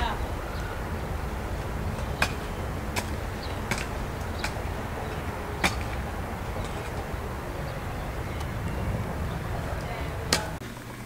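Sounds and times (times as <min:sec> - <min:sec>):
sharp knocks: 0:00.0 - 0:10.6
wind buffeting microphone: 0:00.0 - 0:10.6.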